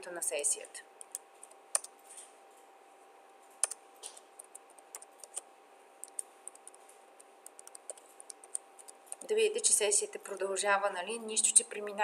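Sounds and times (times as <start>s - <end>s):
keyboard typing: 1.0s - 2.1s, 3.6s - 9.4s.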